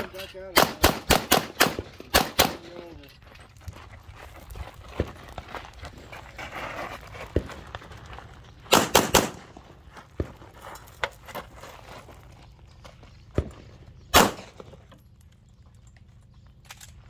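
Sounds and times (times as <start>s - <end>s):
pistol shots: 0.5s - 2.7s, 8.7s - 9.6s, 14.1s - 14.8s.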